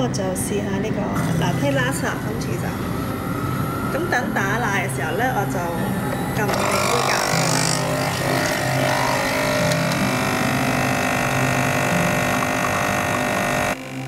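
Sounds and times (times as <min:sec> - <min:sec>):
espresso machine pump buzzing: 0:05.6 - 0:14.0.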